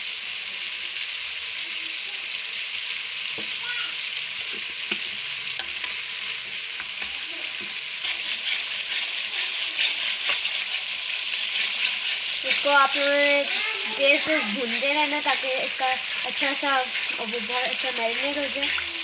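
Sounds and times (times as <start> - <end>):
food sizzling in a wok: 0.0 - 19.0
spatula clicking against pan: 4.9 - 6.0.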